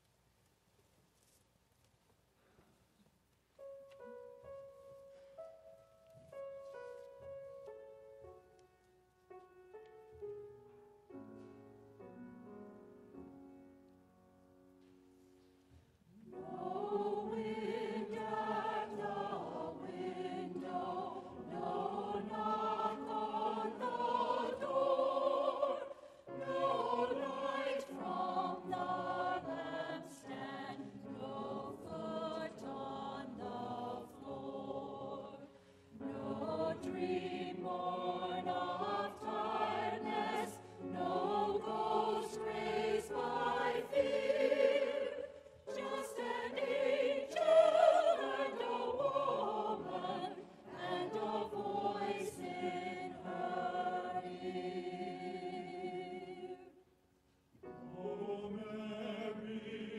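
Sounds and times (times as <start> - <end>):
choir singing a carol: 16.1 - 57.0, 57.6 - 59.9.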